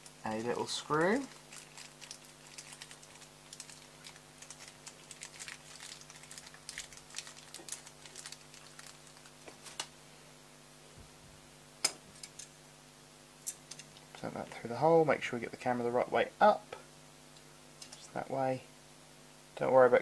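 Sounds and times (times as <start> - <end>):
plastic bag of screws rustling: 0.4 - 9.8.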